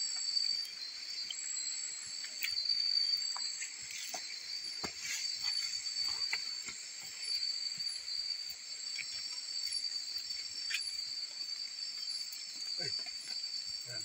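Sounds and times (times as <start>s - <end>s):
night insects chirring: 0.0s - 14.0s.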